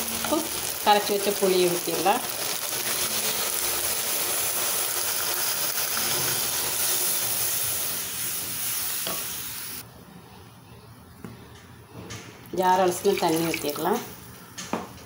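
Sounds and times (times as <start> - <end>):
oil sizzling in a pan: 0.0 - 9.8.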